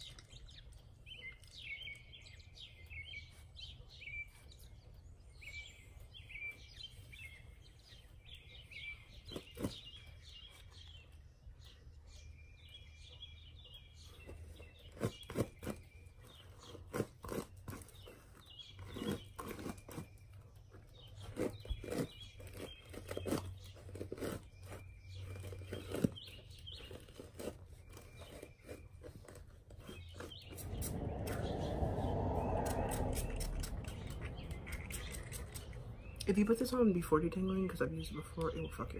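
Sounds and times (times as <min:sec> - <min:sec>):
brush pulled through hair: 0:30.0 - 0:35.8.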